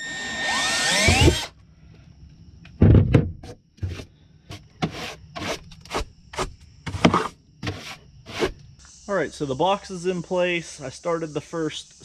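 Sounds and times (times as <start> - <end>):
thump: 2.8 - 4.0
short scraping strokes: 3.8 - 8.6.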